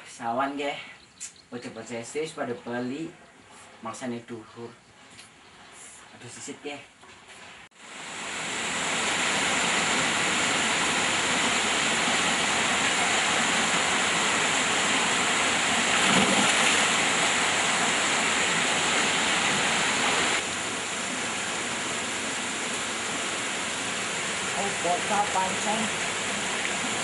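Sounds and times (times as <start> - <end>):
flowing river water: 7.8 - 27.0.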